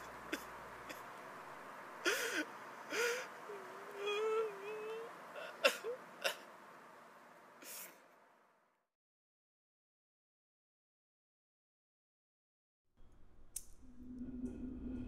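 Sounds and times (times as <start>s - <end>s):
man sobbing: 2.0s - 6.5s.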